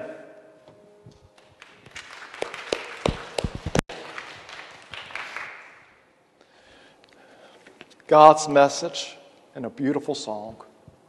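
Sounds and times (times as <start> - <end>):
crowd applauding: 1.5 - 6.0.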